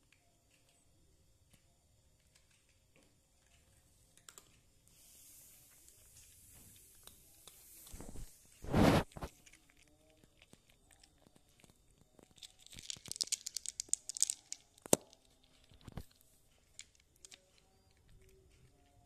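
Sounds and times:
cat crunching dry kibble: 6.9 - 17.7.

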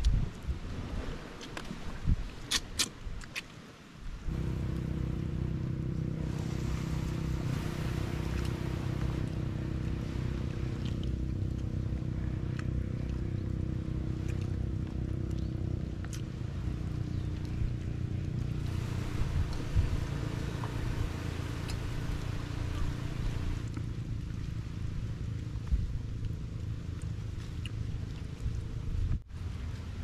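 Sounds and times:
boat engine running: 4.3 - 30.0.

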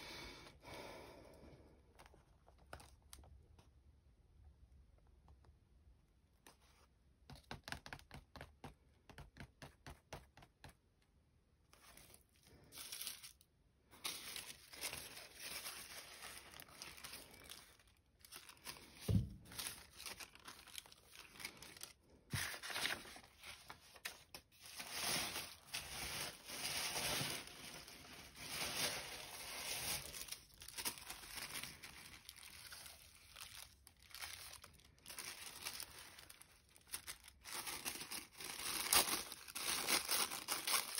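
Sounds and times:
paper rustling and tearing: 11.8 - 40.9.

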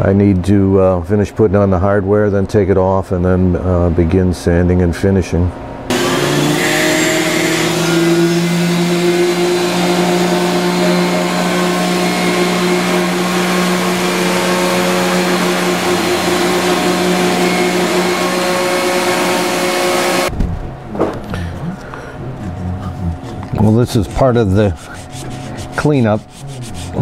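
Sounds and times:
electric sander humming on wood: 5.9 - 20.3, 25.0 - 27.0.

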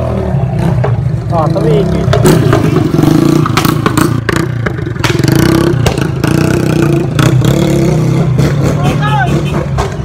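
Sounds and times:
motorcycle engine revving: 0.0 - 10.0
sharp cracks and pops: 5.0 - 6.1.

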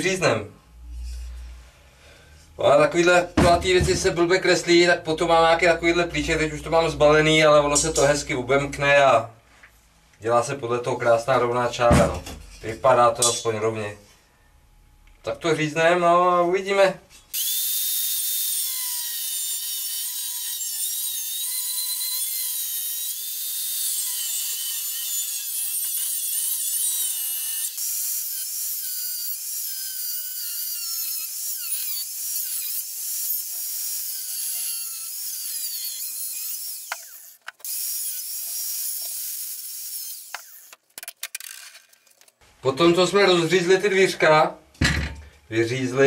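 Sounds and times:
angle grinder cutting steel: 17.3 - 40.8.

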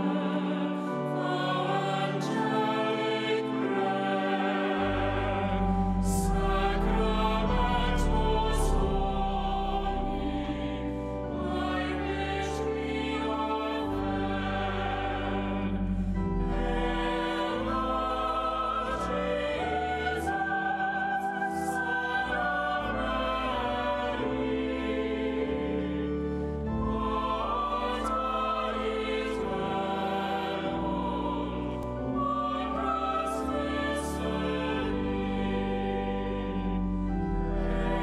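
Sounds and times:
church choir singing: 0.0 - 38.0
sustained deep bass: 5.1 - 11.3.

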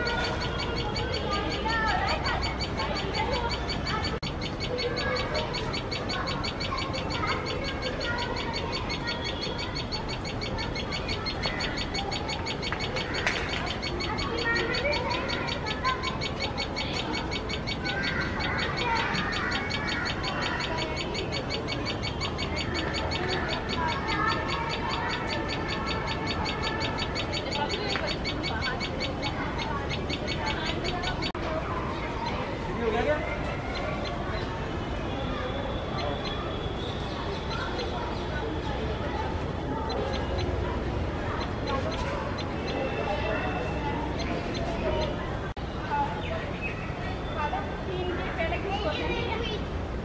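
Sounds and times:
bird chirping sharply: 0.0 - 31.4.

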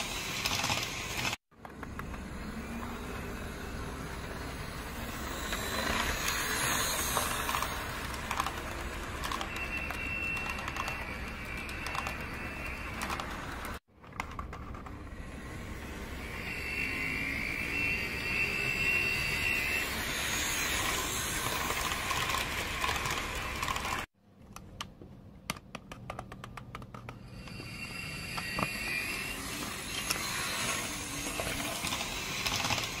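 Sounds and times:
high steady whine: 15.0 - 23.6.

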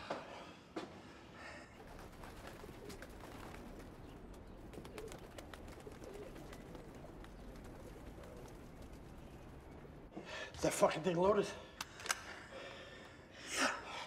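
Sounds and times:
pigeons cooing: 1.8 - 10.1
low background rumble: 1.8 - 10.3.

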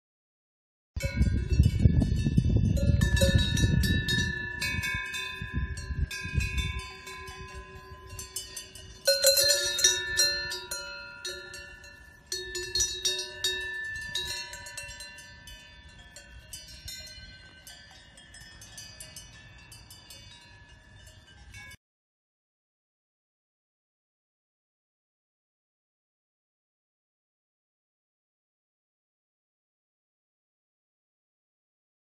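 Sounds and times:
cowbells clanking: 1.0 - 21.8.

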